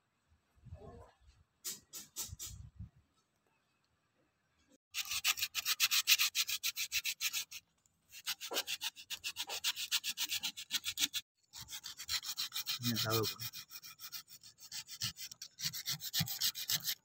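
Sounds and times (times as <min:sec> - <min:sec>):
hand rubbing wooden figure: 0:05.0 - 0:17.0.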